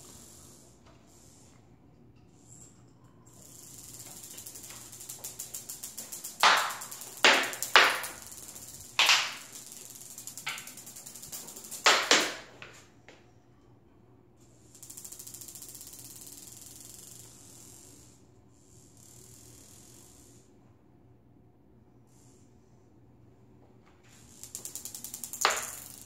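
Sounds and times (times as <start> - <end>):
marble rolling on tiles: 3.4 - 12.8, 24.3 - 26.0
marble knocking on hard surfaces: 6.4 - 8.2, 9.0 - 9.5, 11.8 - 12.8, 25.4 - 26.0.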